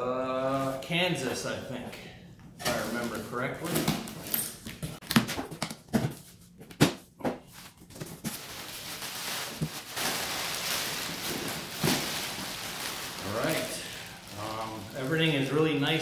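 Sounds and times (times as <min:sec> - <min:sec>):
plastic packing crinkling: 0:07.7 - 0:16.0.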